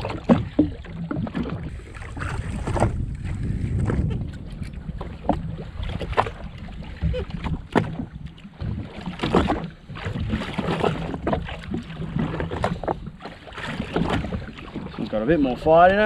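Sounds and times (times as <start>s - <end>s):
water lapping against hull: 0.0s - 16.0s
wind buffeting microphone: 1.2s - 16.0s.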